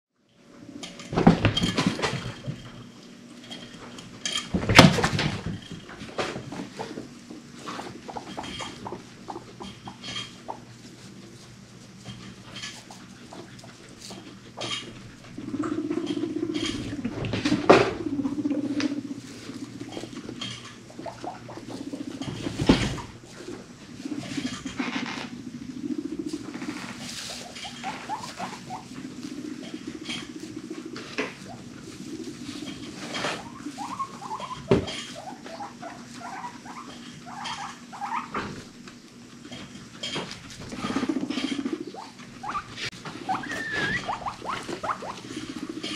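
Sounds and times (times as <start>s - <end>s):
guinea pigs rumbling: 0.2s - 45.9s
small steps and rustles in hay: 6.4s - 24.8s, 26.0s - 45.9s
short squeaks: 43.3s - 44.6s.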